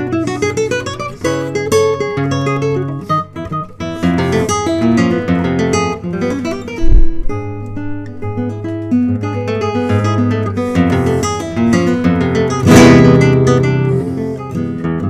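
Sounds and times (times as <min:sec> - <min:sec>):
fingerpicked classical guitar: 0:00.0 - 0:15.0
short deep thump: 0:06.8 - 0:08.4.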